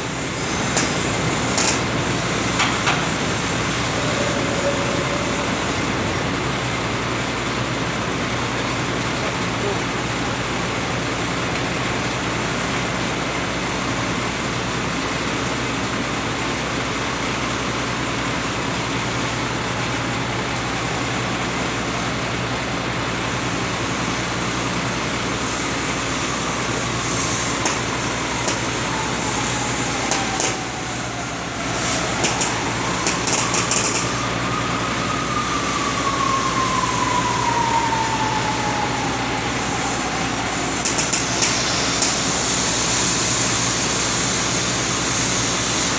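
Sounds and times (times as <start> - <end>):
cutting torch hissing: 0.0 - 8.2, 23.6 - 45.9
whine gliding in pitch: 0.0 - 8.2, 25.8 - 42.3
machine drone: 0.0 - 9.2, 22.9 - 45.2
sharp clicks: 30.1 - 30.6, 32.2 - 34.1, 40.8 - 42.2.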